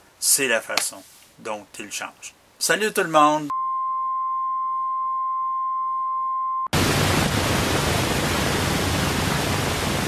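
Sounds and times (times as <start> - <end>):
high electronic beep tone: 3.5 - 6.7.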